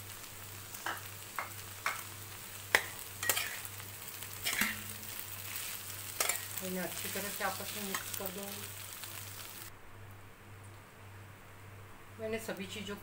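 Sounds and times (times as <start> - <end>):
metal spatula scraping a pan: 2.8 - 6.6.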